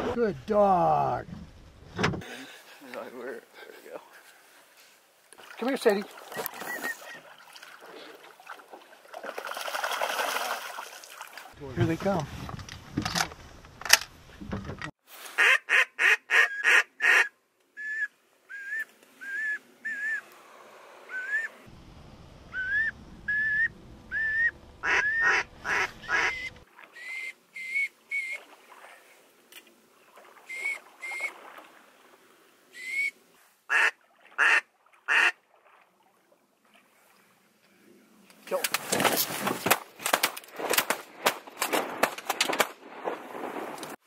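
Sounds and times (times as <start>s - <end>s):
rising whistled notes: 21.1s - 21.6s, 22.5s - 25.2s, 27.0s - 28.4s, 30.4s - 31.3s
loud quick duck quacks: 24.8s - 26.5s.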